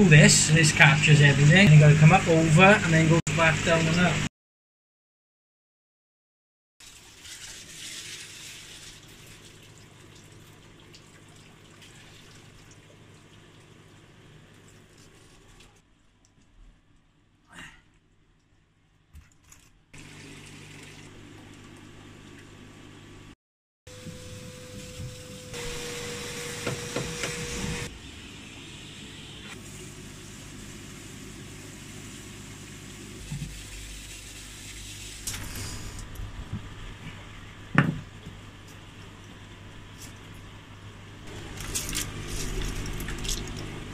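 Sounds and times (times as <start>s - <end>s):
water dripping and trickling: 6.8s - 16.5s, 41.4s - 43.9s
water hissing from a hose: 28.6s - 36.2s.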